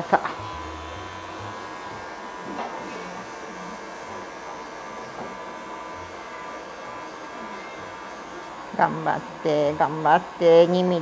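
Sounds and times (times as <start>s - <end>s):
electric pet clippers running: 0.0s - 11.0s.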